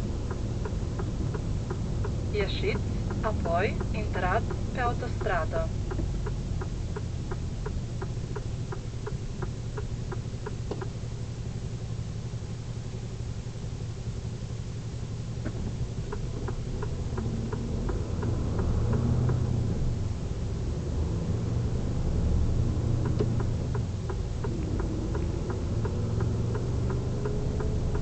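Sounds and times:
diesel engine idling: 0.0 - 21.6
indicator ticking: 0.2 - 10.9, 23.0 - 28.0.

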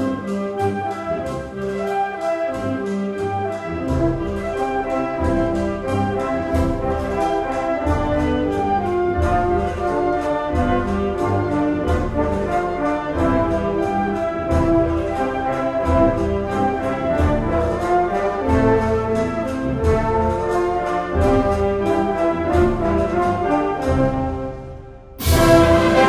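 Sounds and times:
concert band playing a march: 0.0 - 26.0
steady drum beat: 25.2 - 26.0.

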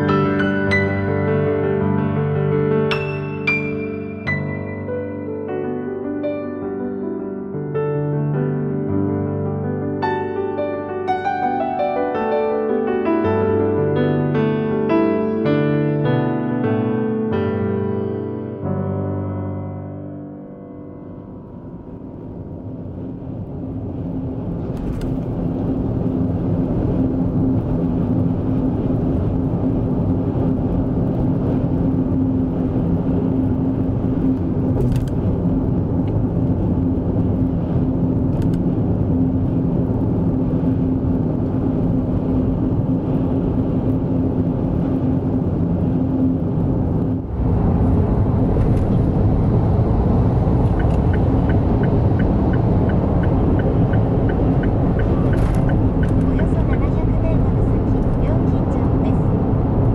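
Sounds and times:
car road and engine rumble: 21.0 - 59.9
light regular ticking: 50.6 - 56.5.

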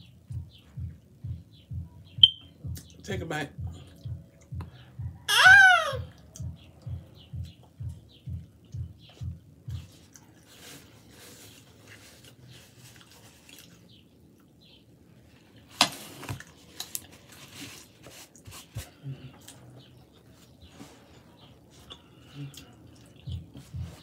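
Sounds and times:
wet chewing mouth sounds: 6.2 - 10.6, 12.3 - 14.6, 21.5 - 24.0.

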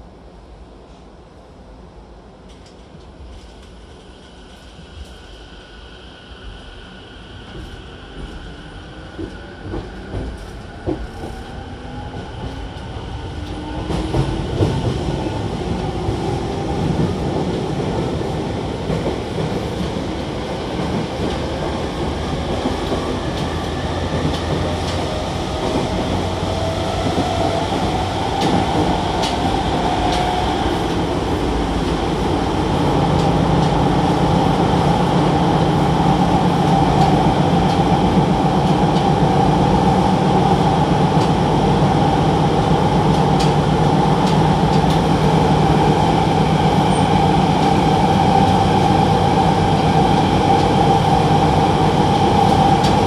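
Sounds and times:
train inverter and motor whine: 3.6 - 53.0.

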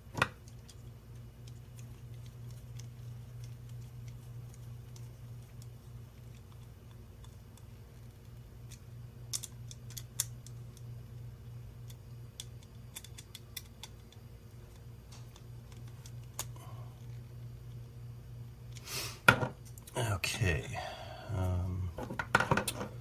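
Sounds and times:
low hum: 19.7 - 23.0.

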